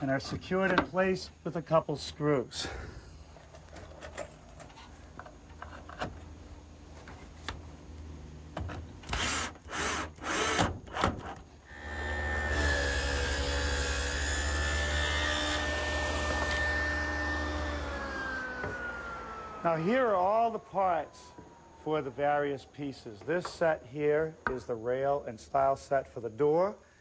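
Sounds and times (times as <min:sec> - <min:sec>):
power drill whirring: 0:09.1 - 0:11.0, 0:11.7 - 0:19.6
machine winding down: 0:11.7 - 0:19.9
woodworking machine whining: 0:11.7 - 0:21.8.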